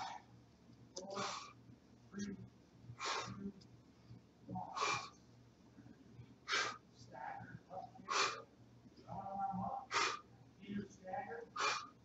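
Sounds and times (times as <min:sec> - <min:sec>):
man breathing forcefully: 0:01.1 - 0:01.6, 0:03.0 - 0:03.4, 0:04.6 - 0:05.2, 0:06.4 - 0:06.8, 0:08.0 - 0:08.4, 0:09.8 - 0:10.3, 0:11.5 - 0:12.0.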